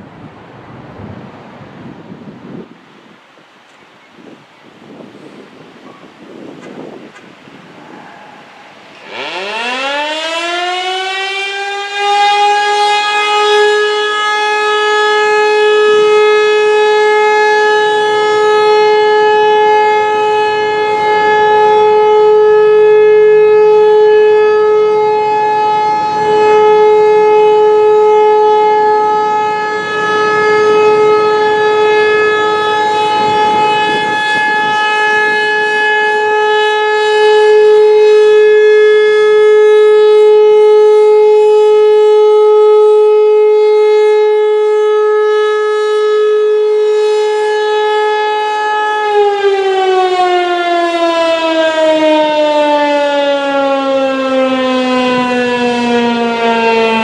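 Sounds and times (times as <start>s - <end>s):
rotating warning siren: 0.0s - 57.0s.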